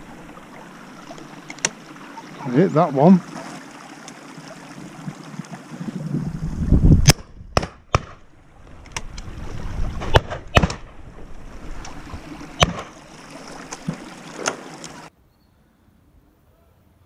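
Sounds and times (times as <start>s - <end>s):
wind rumbling on microphone: 4.7s - 14.4s
shotgun shots: 10.0s - 10.9s.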